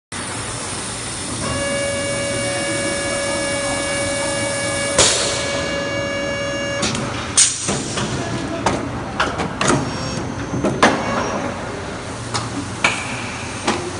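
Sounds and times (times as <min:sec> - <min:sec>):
machine running noise: 0:00.1 - 0:13.9
steady machine whine: 0:00.2 - 0:07.4
sudden loud burst of noise: 0:00.2 - 0:08.2.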